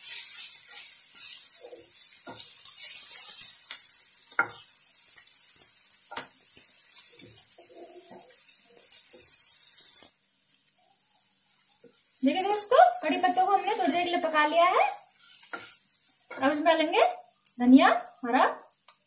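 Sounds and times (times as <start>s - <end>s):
spatula scraping a pan: 0.0s - 10.2s, 11.2s - 16.8s
oil sizzling: 0.0s - 19.0s.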